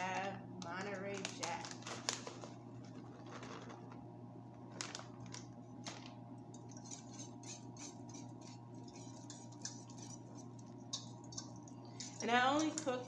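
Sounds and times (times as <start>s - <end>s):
steady low hum: 0.0s - 13.0s
utensil scraping saucepan: 6.5s - 13.0s.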